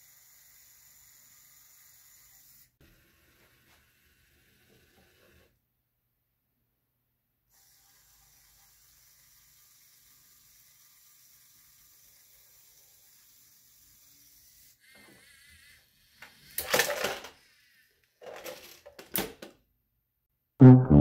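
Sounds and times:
toy motor whining: 0:00.0 - 0:02.8, 0:07.5 - 0:18.8
plastic parts rattling: 0:16.6 - 0:17.4, 0:18.2 - 0:19.5.

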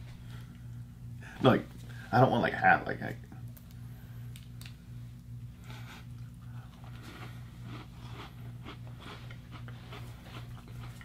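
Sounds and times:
steady low hum: 0:00.0 - 0:11.0
chewing and crunching snack: 0:05.6 - 0:11.0.

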